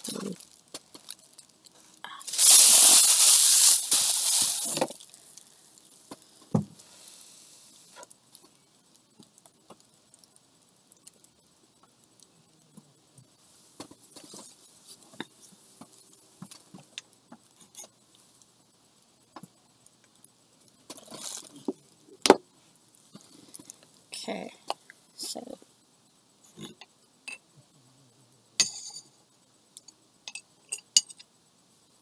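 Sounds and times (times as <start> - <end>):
hiss: 1.7 - 9.2.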